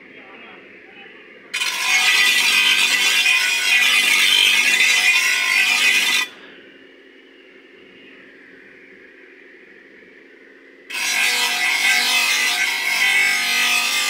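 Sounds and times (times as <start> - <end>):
grinding wheel on steel blade: 1.6 - 6.3, 10.9 - 14.0.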